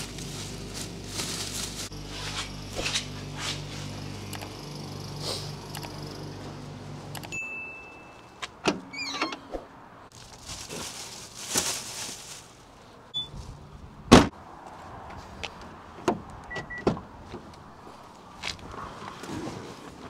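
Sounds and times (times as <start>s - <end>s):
plastic bags rustling: 0.0s - 4.0s, 10.1s - 12.9s.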